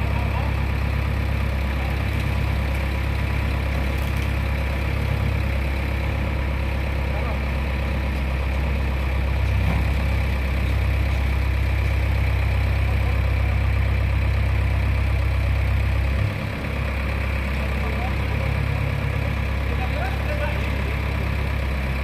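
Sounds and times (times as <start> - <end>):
diesel engine under load: 0.0 - 22.0.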